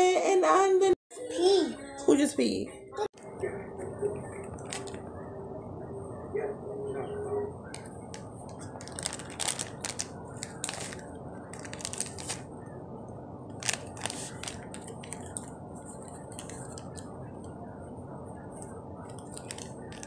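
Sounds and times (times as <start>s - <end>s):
box crinkling: 4.4s - 5.0s, 7.8s - 12.5s, 13.5s - 17.1s, 19.1s - 20.0s
cornstarch crunching: 7.8s - 12.5s, 13.5s - 15.4s.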